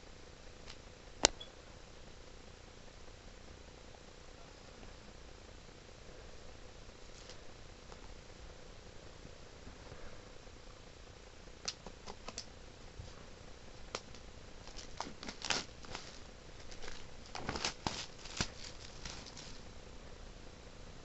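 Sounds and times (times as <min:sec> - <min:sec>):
plastic case clicks and crinkles: 0:13.9 - 0:19.6.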